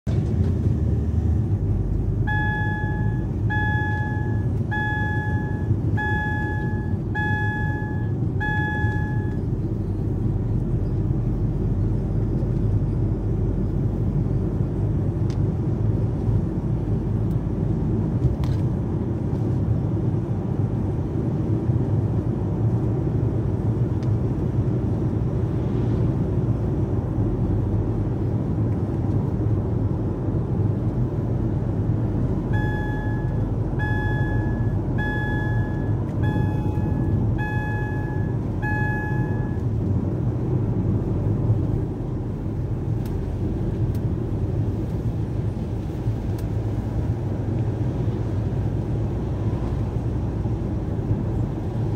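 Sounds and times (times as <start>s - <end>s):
car cabin road and engine rumble: 0.0s - 51.9s
short electronic beeps: 2.3s - 9.5s, 32.5s - 39.6s.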